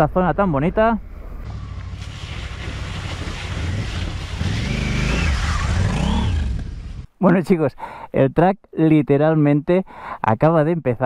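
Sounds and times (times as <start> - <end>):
motorcycle engine: 1.4 - 7.1
water splashing under tyres: 1.5 - 5.8.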